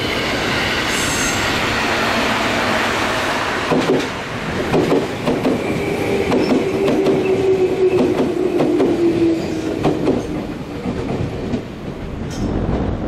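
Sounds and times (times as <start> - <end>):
electric train humming: 0.0 - 13.0
train wheels clacking on rails: 3.6 - 13.0.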